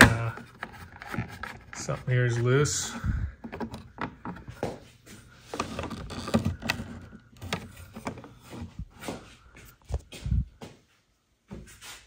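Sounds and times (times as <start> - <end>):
plastic scraping on plastic: 0.0 - 4.8, 5.4 - 9.0
plastic panels clicking and knocking: 3.4 - 4.8, 5.6 - 8.4.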